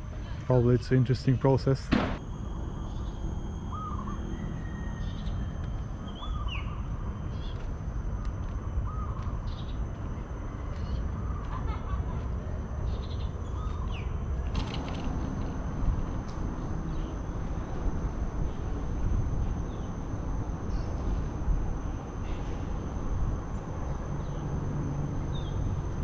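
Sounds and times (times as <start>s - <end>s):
steady low rumble: 0.0s - 26.0s
birds calling: 2.8s - 7.6s, 8.3s - 9.9s.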